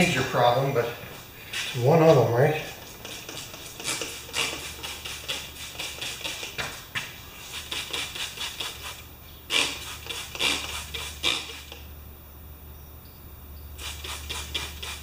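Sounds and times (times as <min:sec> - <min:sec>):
spray bottle squirting: 0:02.7 - 0:11.9, 0:13.8 - 0:15.0.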